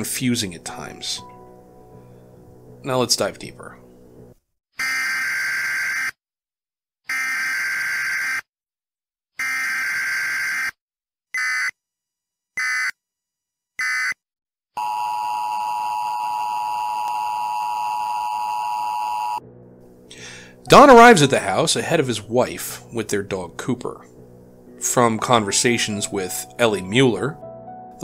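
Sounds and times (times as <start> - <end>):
electronic alarm beeping: 14.8 - 19.4
steady low alarm tone: 14.8 - 19.5.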